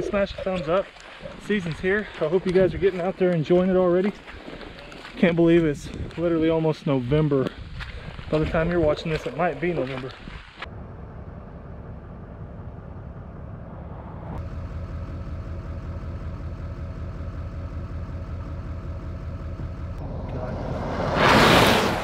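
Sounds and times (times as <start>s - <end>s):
vehicle engine and road rumble: 0.0s - 22.0s
loud rushing whoosh: 20.0s - 22.0s.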